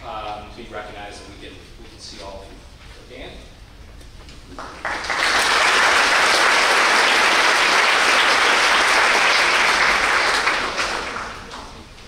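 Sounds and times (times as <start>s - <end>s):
audience applauding: 4.5s - 11.8s.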